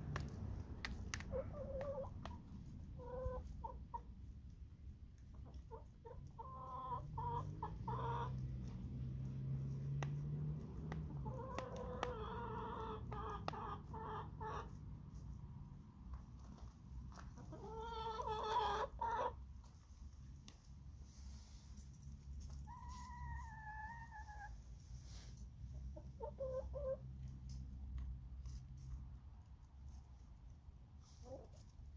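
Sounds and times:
hens clucking: 0.0 - 4.4, 5.2 - 9.0, 10.8 - 15.4, 16.1 - 19.8, 22.7 - 24.6, 25.8 - 27.3, 31.0 - 31.8.

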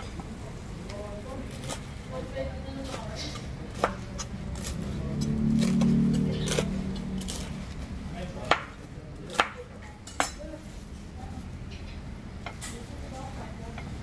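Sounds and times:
knife chopping on wooden board: 3.3 - 7.5, 8.4 - 10.4.

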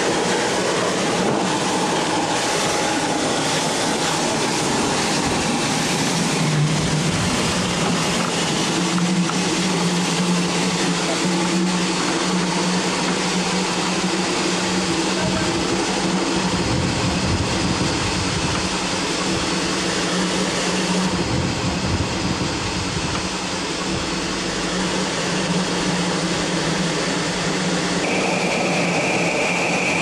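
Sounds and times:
steam locomotive running: 0.0 - 30.0
steady high tone: 23.6 - 30.0.

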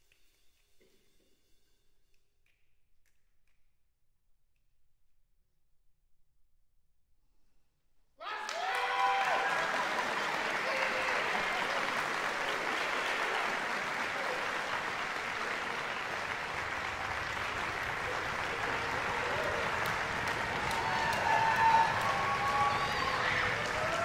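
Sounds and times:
audience applauding: 8.2 - 24.0.

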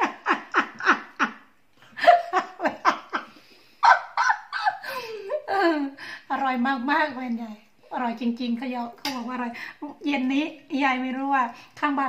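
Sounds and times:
woman laughing hard: 0.0 - 6.0.

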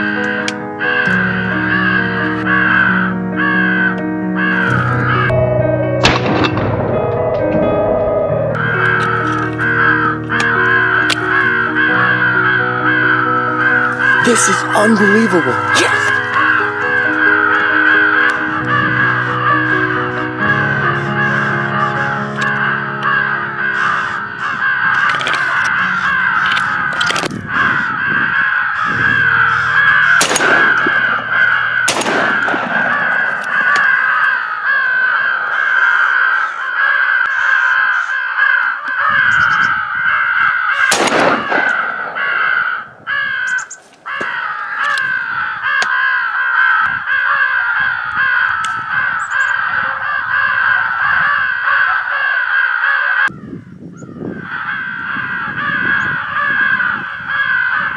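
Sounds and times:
crows cawing: 0.0 - 57.9
sharp cracks: 6.0 - 7.6, 24.9 - 27.4, 30.1 - 36.3, 40.8 - 45.1.

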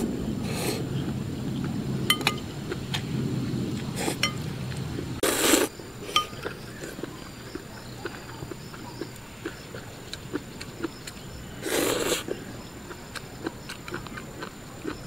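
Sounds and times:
chopsticks clinking ceramic bowl: 2.1 - 2.5, 6.1 - 6.5
loud slurp of noodles: 5.2 - 5.7, 11.6 - 12.3.

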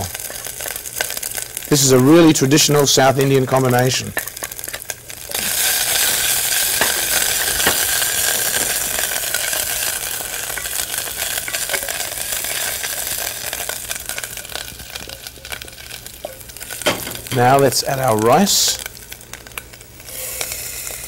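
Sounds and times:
food sizzling in hot fat: 0.0 - 21.0
small crackles: 0.0 - 21.0
wooden spoon stirring in pot: 3.7 - 17.6.

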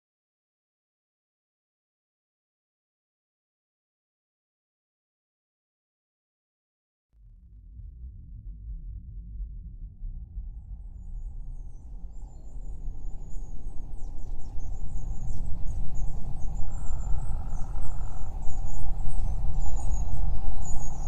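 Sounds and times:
low rumble: 7.2 - 21.0.

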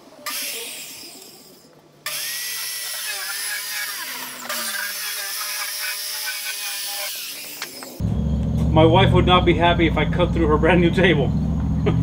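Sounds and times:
circular saw whining: 0.2 - 8.7.

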